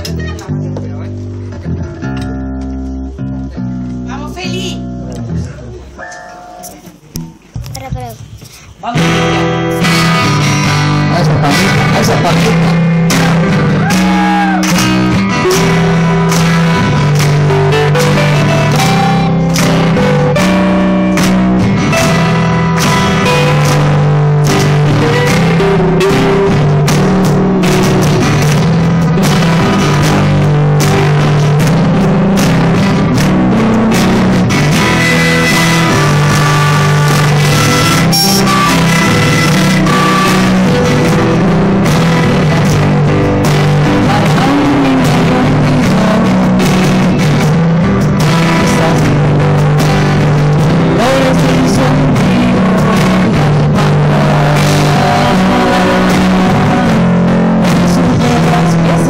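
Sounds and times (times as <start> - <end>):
live rock band playing: 0.0 - 59.0
woman singing: 44.0 - 47.0, 48.3 - 59.0.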